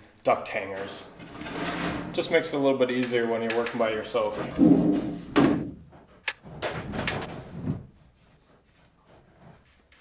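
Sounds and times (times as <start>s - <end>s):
sheet metal scraping: 0.7s - 2.6s.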